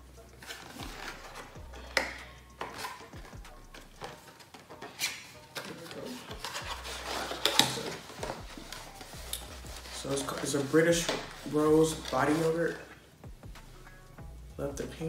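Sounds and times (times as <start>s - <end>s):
hands opening packaging: 4.0s - 11.3s.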